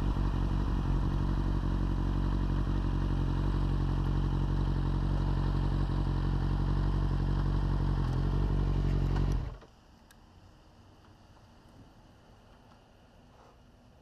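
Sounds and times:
motorcycle engine idling: 0.0 - 9.6.

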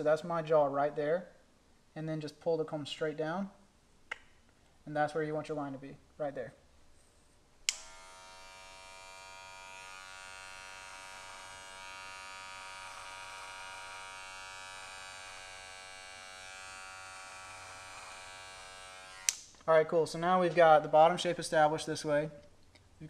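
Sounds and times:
electric hair clipper buzzing: 7.7 - 19.4.

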